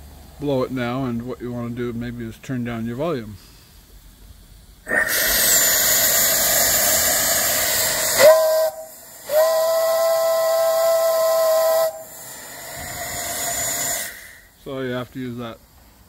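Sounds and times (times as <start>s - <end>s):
steam hissing: 3.2s - 16.0s
steam whistle blasts: 4.9s - 14.5s.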